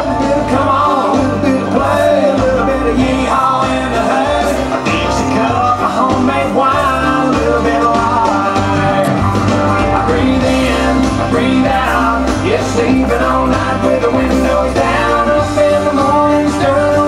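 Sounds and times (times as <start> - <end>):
country dance music: 0.0 - 17.0.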